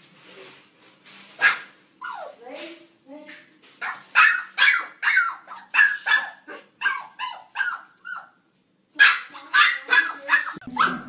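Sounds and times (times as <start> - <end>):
puppy yapping high barks: 1.4 - 2.4, 3.8 - 8.4, 9.0 - 11.0.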